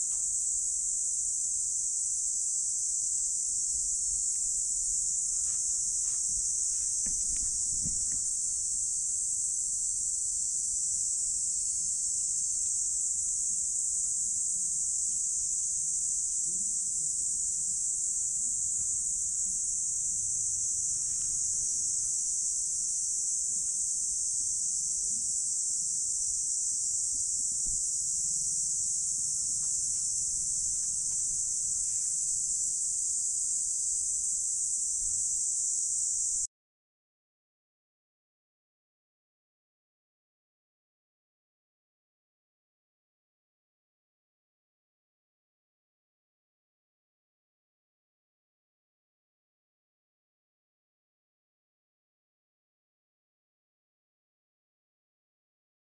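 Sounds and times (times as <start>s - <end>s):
insects shrill chorus: 28.8s - 33.6s.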